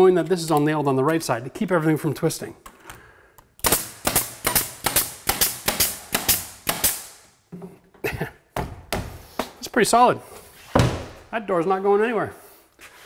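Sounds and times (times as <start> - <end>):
pneumatic nailer firing: 3.6 - 7.3.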